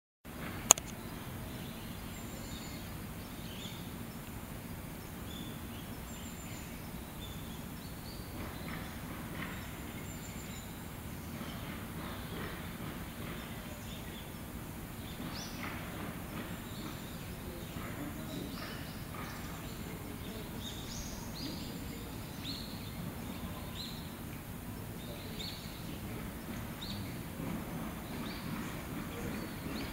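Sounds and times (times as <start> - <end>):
low background noise: 0.3 - 29.9
sharp click: 0.7 - 1.0.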